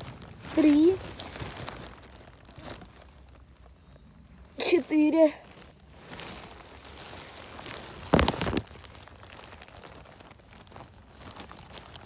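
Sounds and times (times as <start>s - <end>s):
crackling rustle of forest litter: 0.0s - 12.0s
faint rustling: 0.0s - 12.0s.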